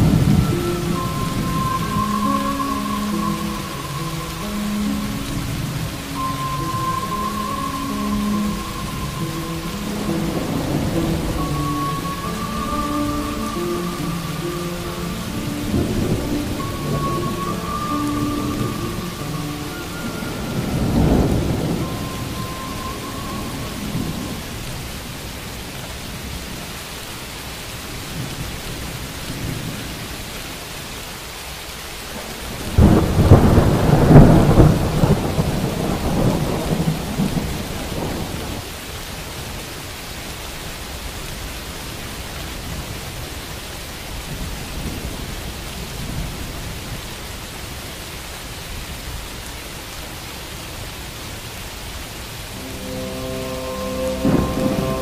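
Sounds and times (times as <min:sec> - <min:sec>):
thunder crack rumbling: 0:00.0 - 0:12.2, 0:15.6 - 0:24.6, 0:32.2 - 0:38.7, 0:52.5 - 0:55.0
steady rain falling: 0:00.0 - 0:55.0.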